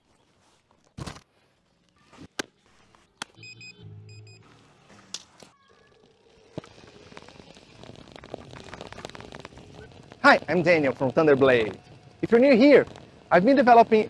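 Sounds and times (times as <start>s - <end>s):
low electronic hum: 2.8s - 14.0s
short electronic beeps: 3.4s - 4.5s
skate wheels rolling on asphalt: 4.6s - 14.0s.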